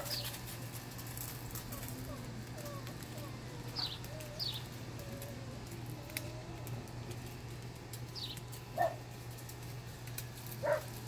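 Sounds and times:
steady low hum: 0.0s - 11.0s
high falling bird chirp: 3.7s - 4.8s.

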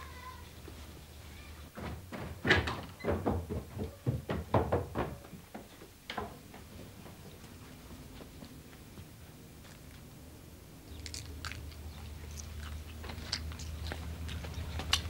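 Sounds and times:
footsteps on wooden stairs: 1.7s - 9.0s.

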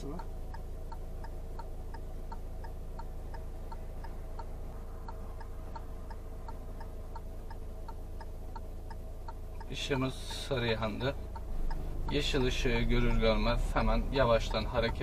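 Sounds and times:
car engine idling: 0.0s - 15.0s
turn signal ticking: 0.0s - 15.0s.

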